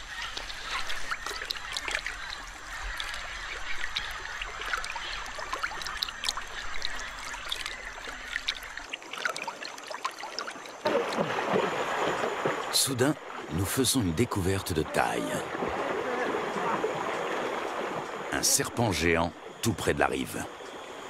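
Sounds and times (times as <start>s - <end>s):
river water splashing: 0.0s - 21.0s
water dripping: 0.4s - 13.8s.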